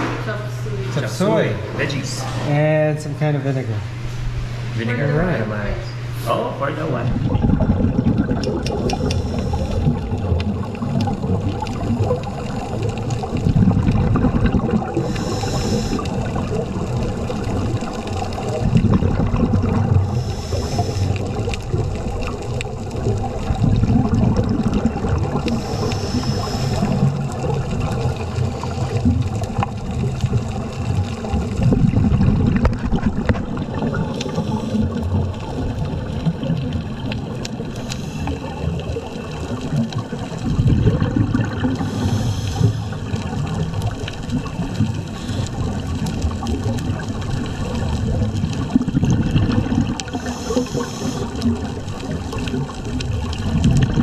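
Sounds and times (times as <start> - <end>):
exhaled bubbles gurgling underwater: 6.8 - 54.0
regulator hissing inhale: 8.8 - 10.1, 14.9 - 16.4, 20.0 - 21.5, 25.4 - 27.4, 34.1 - 35.0, 37.6 - 38.7, 41.7 - 43.2, 45.0 - 45.8, 50.0 - 51.5.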